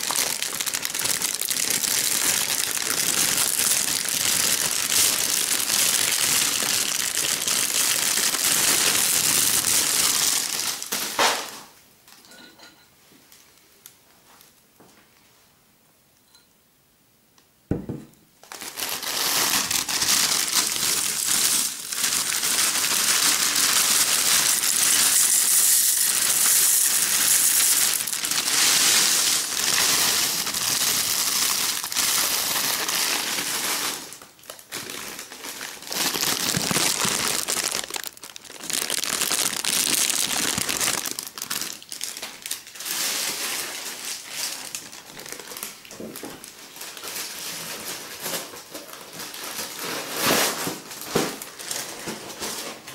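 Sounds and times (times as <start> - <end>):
packaging crinkling: 0.0 - 11.6, 18.4 - 52.9
knock: 17.7 - 18.1.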